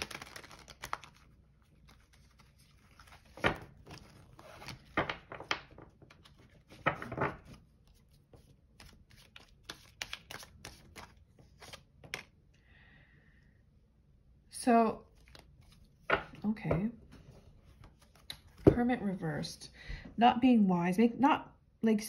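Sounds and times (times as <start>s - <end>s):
cards being shuffled: 0.0s - 12.3s, 15.1s - 16.4s, 17.7s - 18.8s.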